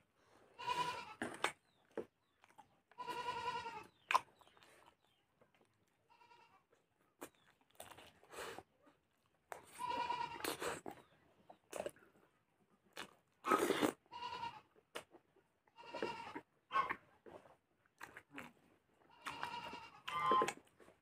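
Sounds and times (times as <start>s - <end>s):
chewing: 1.2s - 3.0s, 3.9s - 6.0s, 7.2s - 9.8s, 10.4s - 14.0s, 14.9s - 21.0s.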